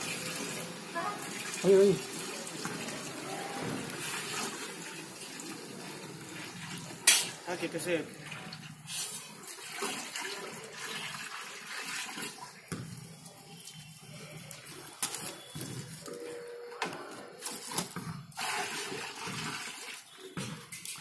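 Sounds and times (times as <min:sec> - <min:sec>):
liquid pouring into metal pot: 0:08.0 - 0:12.6, 0:18.3 - 0:20.3.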